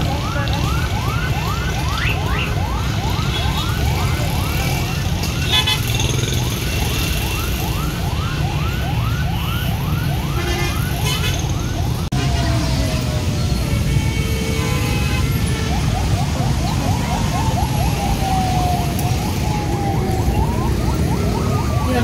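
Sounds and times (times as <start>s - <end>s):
low rumble of traffic: 0.0s - 22.0s
siren in rapid rising sweeps: 6.2s - 13.6s, 15.4s - 22.0s.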